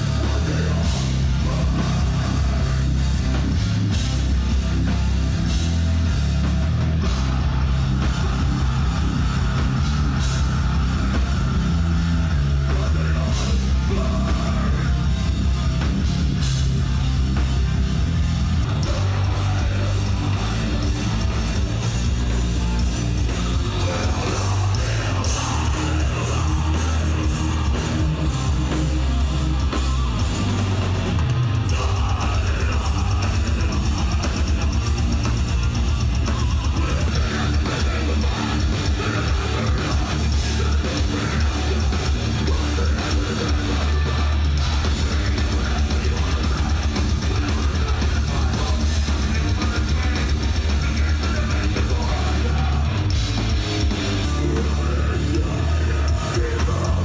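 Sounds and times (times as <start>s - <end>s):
live metal band: 0.0s - 57.0s.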